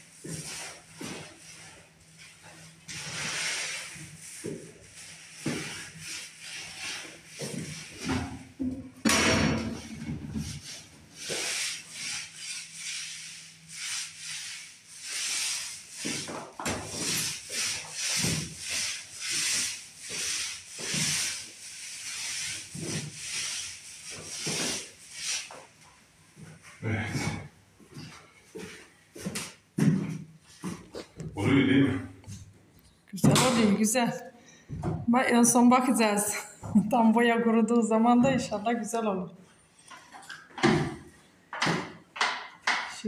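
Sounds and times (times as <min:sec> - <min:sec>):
paint roller rasping on ceiling: 0:00.0 - 0:08.7, 0:09.6 - 0:30.8.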